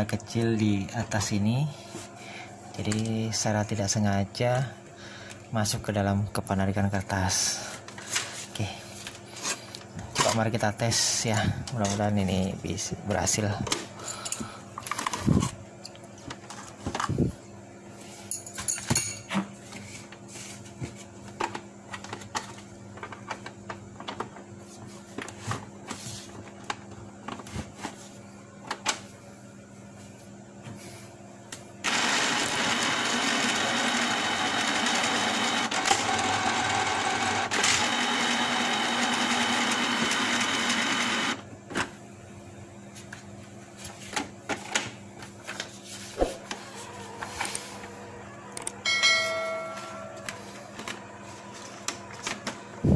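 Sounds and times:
printer mechanism whirring: 0:31.8 - 0:41.4, 0:49.8 - 0:52.9.

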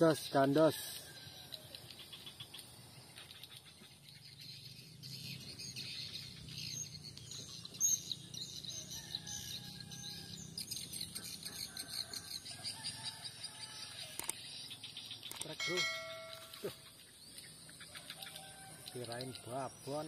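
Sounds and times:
small birds chirping: 0:00.0 - 0:20.0
high insect trill: 0:09.0 - 0:20.0.

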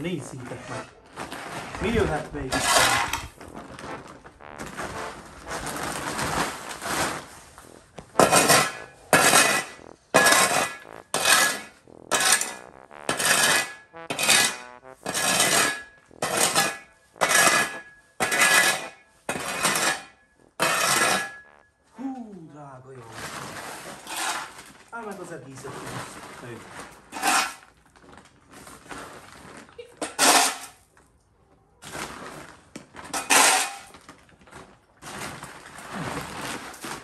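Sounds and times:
metal spade scraping concrete: 0:01.4 - 0:03.3, 0:08.2 - 0:21.4, 0:23.6 - 0:24.5, 0:27.1 - 0:27.6, 0:30.0 - 0:30.8, 0:33.2 - 0:33.9.

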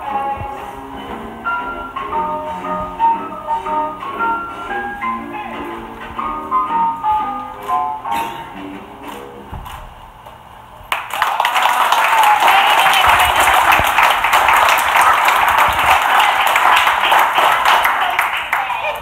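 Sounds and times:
faint music: 0:00.0 - 0:10.9
audience clapping: 0:10.9 - 0:19.0.

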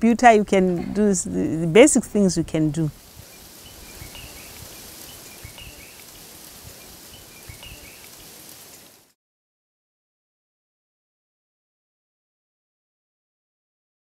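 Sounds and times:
outdoor background hiss: 0:00.0 - 0:09.2
faint bird chirps: 0:03.1 - 0:08.9.

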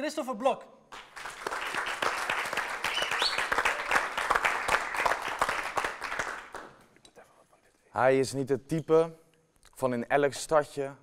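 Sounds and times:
audience applauding: 0:00.9 - 0:06.8.

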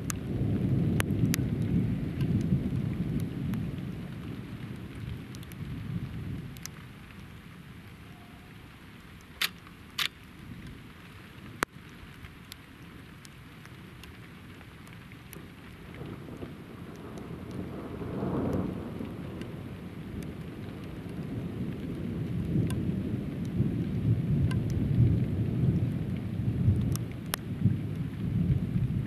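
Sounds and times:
thunder rumbling: 0:00.0 - 0:07.3, 0:15.8 - 0:29.0
steady rain: 0:00.0 - 0:29.0
sharp clicks: 0:09.2 - 0:10.2.

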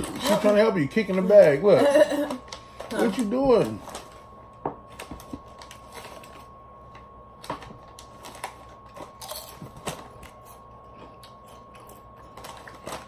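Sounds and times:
plastic chip bag crinkling: 0:00.0 - 0:13.0
chips crunching: 0:08.0 - 0:13.0.

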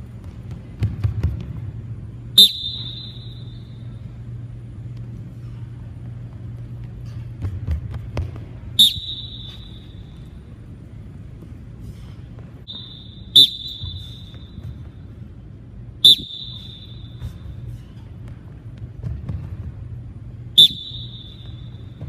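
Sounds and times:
steady low hum: 0:00.0 - 0:22.0
sneaker squeak: 0:02.4 - 0:04.0, 0:08.7 - 0:10.4, 0:12.6 - 0:15.1, 0:16.0 - 0:18.1, 0:20.6 - 0:22.0
running footfalls on gym floor: 0:16.6 - 0:20.0.

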